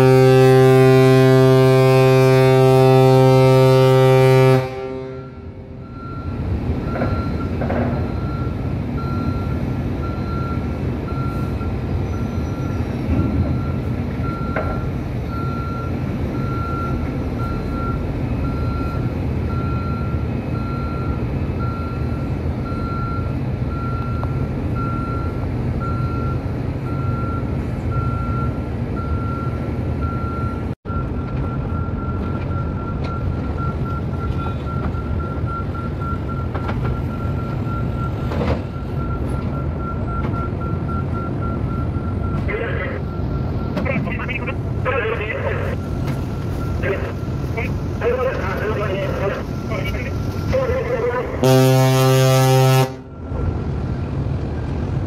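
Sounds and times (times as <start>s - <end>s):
ship's horn blast: 0.0s - 6.1s, 50.5s - 53.2s
low engine rumble: 0.0s - 55.0s
reversing beeper beeping: 3.7s - 53.7s.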